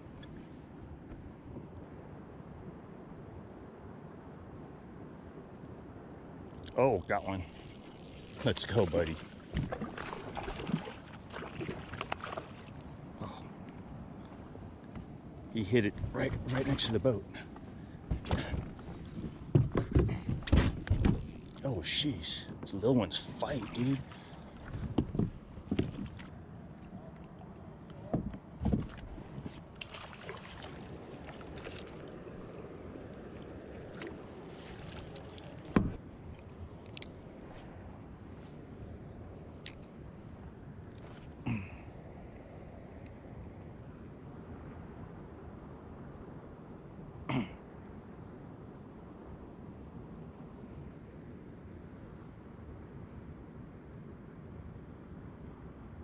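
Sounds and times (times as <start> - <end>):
water sloshing around kayak: 6.6 - 13.2, 22.6 - 36.6
person clearing throat: 41.4 - 41.8, 47.3 - 47.6.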